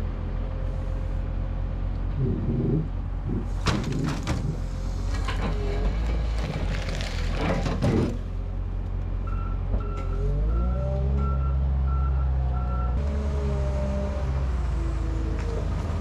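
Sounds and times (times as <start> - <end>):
heavy machine engine running: 0.6 - 8.7.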